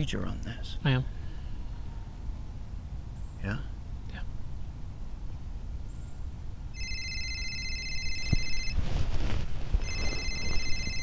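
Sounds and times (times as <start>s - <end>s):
rustle: 0.0s - 11.0s
mobile phone ringing: 6.8s - 8.8s, 9.8s - 11.0s
wind rumble on microphone: 8.2s - 11.0s.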